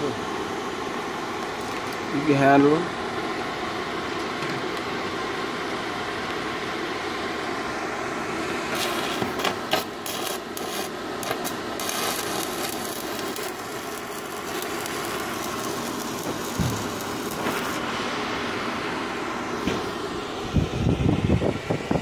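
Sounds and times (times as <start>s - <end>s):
welding arc crackling sizzle: 0.0s - 20.2s
background hum: 8.7s - 19.8s.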